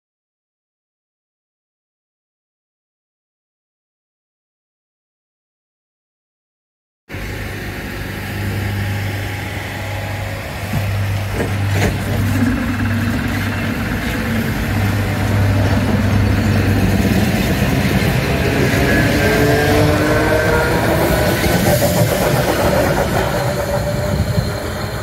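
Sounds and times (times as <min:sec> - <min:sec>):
rising whine: 0:07.1 - 0:25.0
train locomotive humming: 0:07.1 - 0:25.0.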